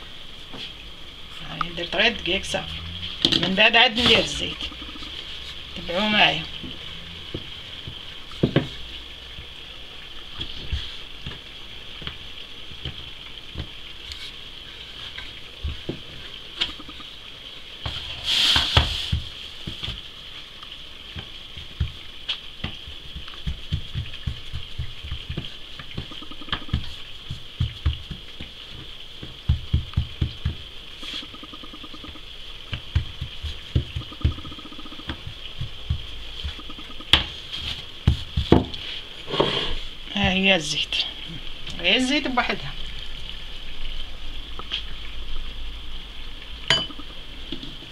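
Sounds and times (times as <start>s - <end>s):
faint steady hiss: 0.0s - 47.9s
rustle: 0.0s - 47.9s
rolling pin tapping dough on wood: 21.1s - 22.0s, 22.6s - 30.7s, 31.3s - 37.3s, 38.0s - 38.8s.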